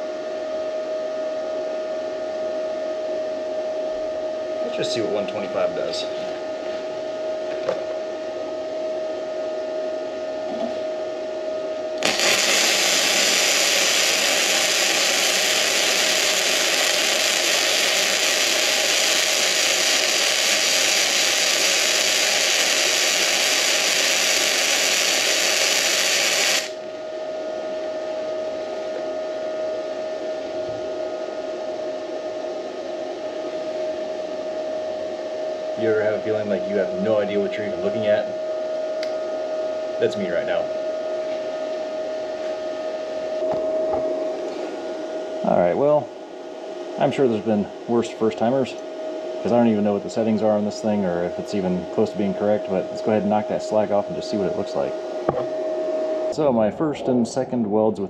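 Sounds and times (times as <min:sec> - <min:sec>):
machine hum with whine: 0:00.0 - 0:58.0
welder arc crackling sizzle: 0:11.8 - 0:30.6, 0:46.7 - 0:56.8.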